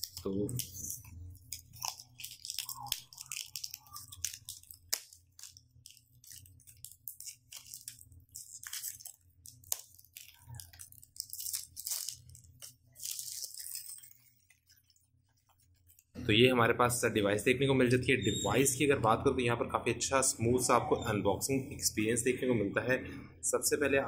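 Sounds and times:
plastic wrap crinkling: 0.0 - 16.2.

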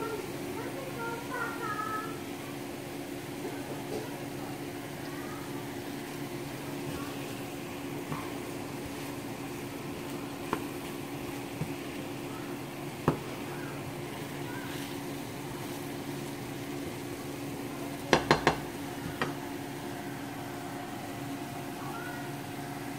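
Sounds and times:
steady low hum: 0.0 - 22.9
tongs knocking against frying pan: 18.1 - 19.4.

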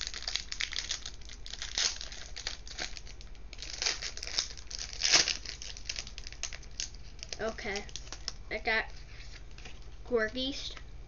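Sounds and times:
foil pack crinkling and tearing: 0.0 - 8.4.

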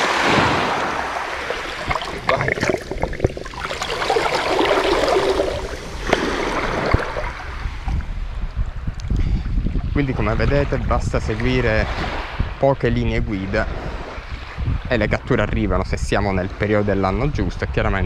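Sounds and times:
seawater sloshing and splashing: 0.0 - 8.2.

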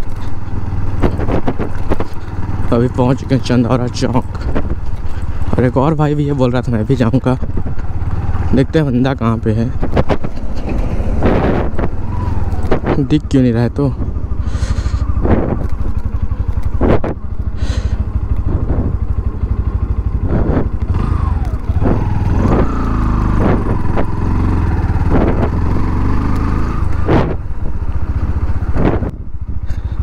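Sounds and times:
motorcycle engine running: 0.0 - 30.0
knocks and thumps: 1.0 - 2.2, 9.8 - 12.0.

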